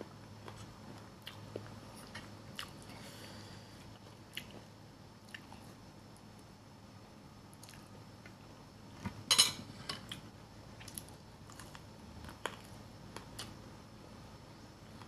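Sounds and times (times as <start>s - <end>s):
soft clicks of eating: 7.5s - 8.4s.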